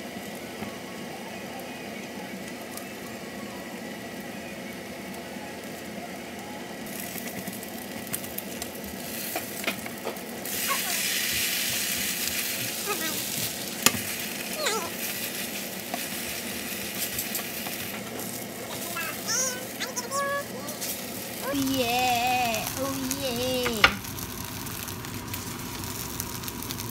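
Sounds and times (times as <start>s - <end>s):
batter sizzling in a frying pan: 1.8s - 26.9s.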